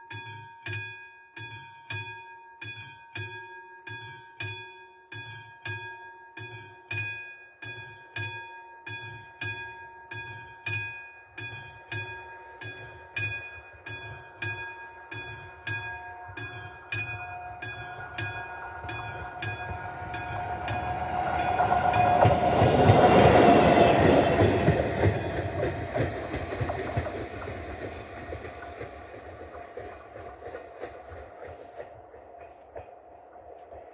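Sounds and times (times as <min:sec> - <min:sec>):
level crossing bell ringing: 0:08.7 - 0:25.6
train rumbling past: 0:11.2 - 0:33.9.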